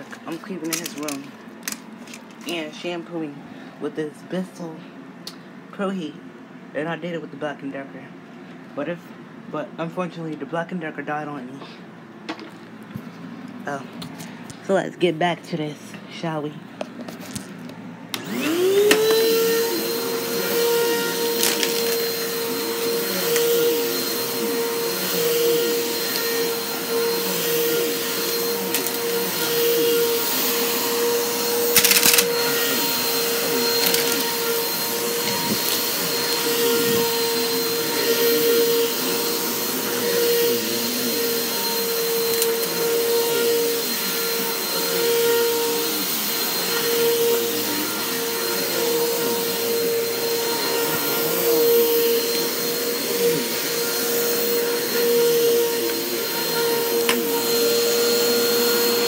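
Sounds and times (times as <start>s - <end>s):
carpet cleaner motor whining: 18.1s - 59.0s.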